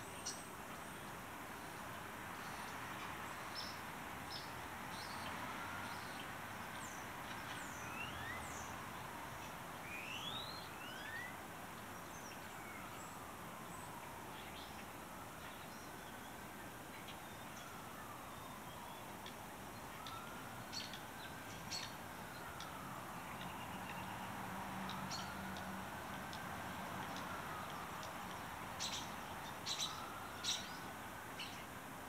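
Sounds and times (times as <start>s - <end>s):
birds chirping: 27.0s - 31.7s.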